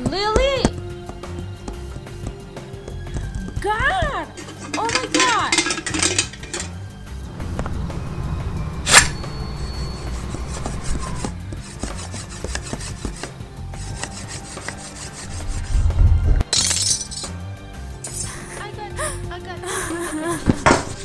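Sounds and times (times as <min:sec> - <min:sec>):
film music score: 0:00.0 - 0:21.0
low rumble with scraping: 0:06.2 - 0:12.4, 0:15.2 - 0:16.4
sharp crack: 0:08.8 - 0:09.4.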